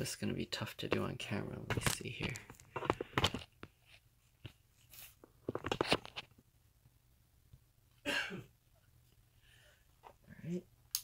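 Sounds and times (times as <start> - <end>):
soft clicks and scratches: 0.8 - 6.4.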